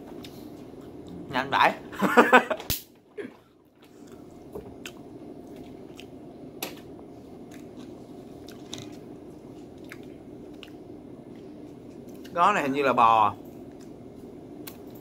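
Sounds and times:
person chewing snack: 3.8s - 6.2s, 7.4s - 12.3s.

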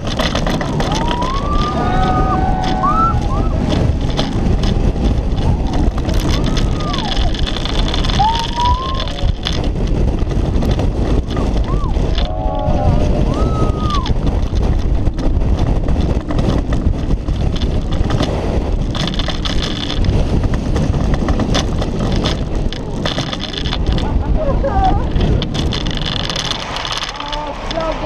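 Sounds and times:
coaster wheels clattering on track: 0.0s - 28.0s
wind roaring: 0.0s - 28.0s
riders shouting: 0.8s - 3.8s, 11.7s - 14.2s.

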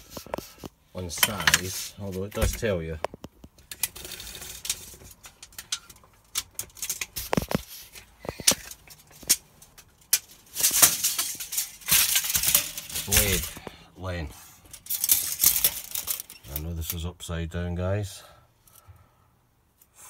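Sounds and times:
scraping and rustling: 0.0s - 17.0s
metal items clicking and rattling: 8.2s - 13.7s, 14.7s - 17.0s.

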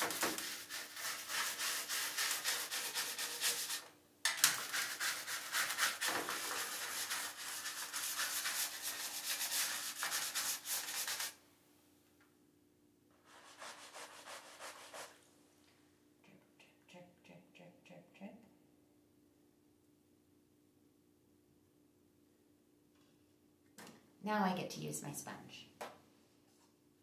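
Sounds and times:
scrub brush scrubbing: 0.0s - 3.8s, 4.5s - 11.4s, 13.2s - 15.2s.

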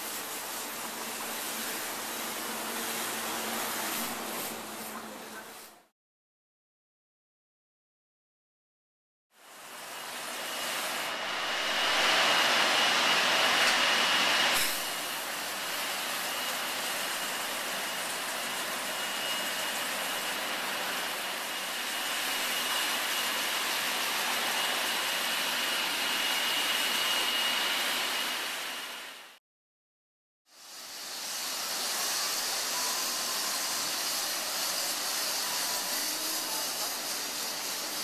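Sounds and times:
steam spray gun hissing: 0.0s - 5.8s, 9.8s - 29.3s, 30.5s - 38.0s
thin high whistle: 31.2s - 38.0s.

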